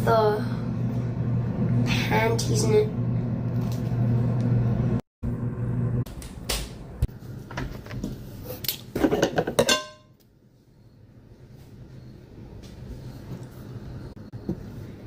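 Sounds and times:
steady low hum: 0.0s - 8.9s.

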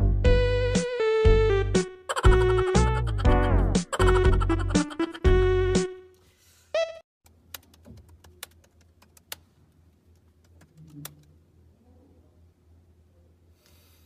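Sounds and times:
music track: 0.0s - 6.2s.

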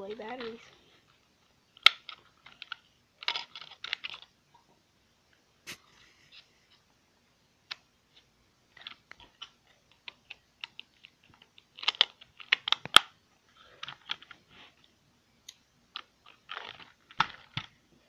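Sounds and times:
toy car plastic clicks: 8.7s - 13.1s.

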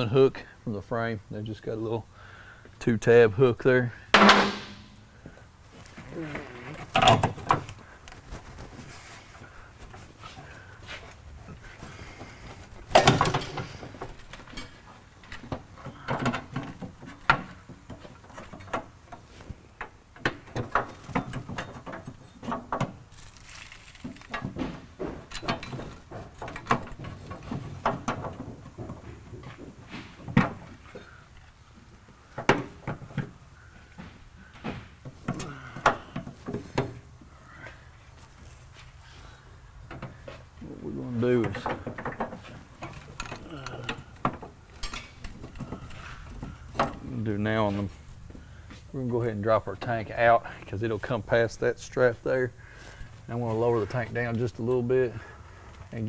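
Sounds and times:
metal clanks and rattles: 4.1s - 5.0s, 6.8s - 37.9s, 39.8s - 51.6s.

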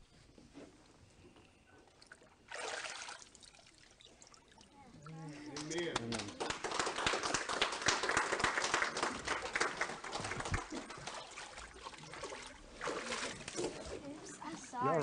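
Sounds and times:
water splashing and dripping: 1.9s - 5.2s, 10.1s - 15.0s
congregation applauding: 5.6s - 11.2s.

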